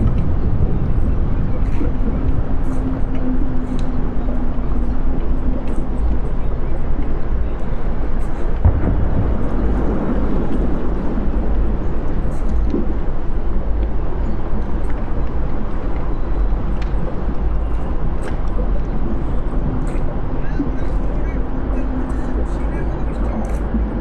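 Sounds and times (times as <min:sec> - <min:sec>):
soil crackling: 0:00.0 - 0:24.0
wind buffeting microphone: 0:00.0 - 0:24.0.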